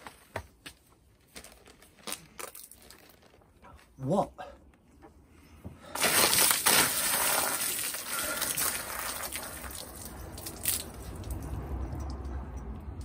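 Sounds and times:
water crashing down and splashing: 6.0s - 11.6s
water dripping: 7.0s - 13.0s.

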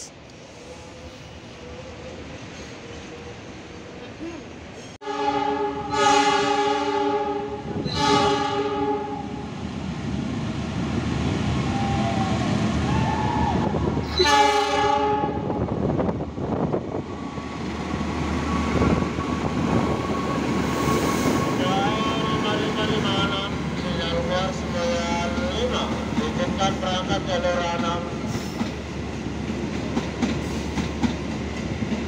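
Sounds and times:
train rumbling past: 0.0s - 32.0s
diesel locomotive horn: 5.0s - 9.4s, 14.1s - 15.6s.

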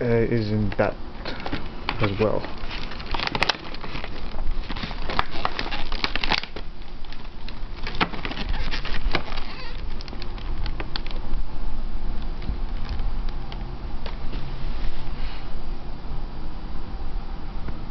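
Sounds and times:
plastic packaging crackling and clicking: 0.6s - 11.4s, 12.2s - 14.2s.

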